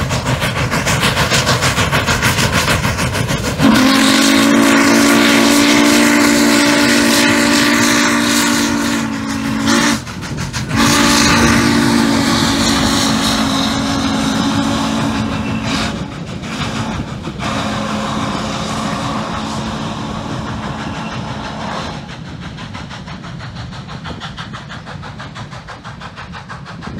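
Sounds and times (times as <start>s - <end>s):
train rumbling past: 0.0s - 26.9s
steam whistle blasts: 3.6s - 10.1s, 10.7s - 22.1s.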